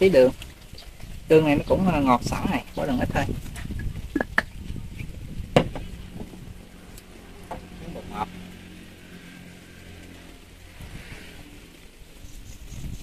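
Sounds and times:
low engine hum: 0:04.7 - 0:13.0.

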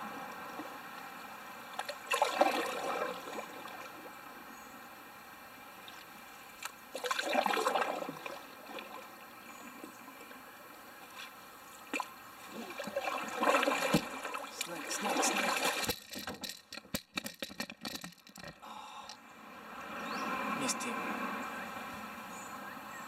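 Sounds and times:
paddle strokes splashing in water: 0:01.7 - 0:04.2, 0:05.8 - 0:18.1.

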